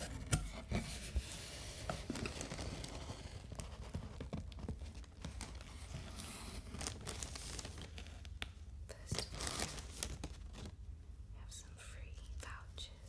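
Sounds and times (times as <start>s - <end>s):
plastic packaging crinkling: 2.0s - 10.8s.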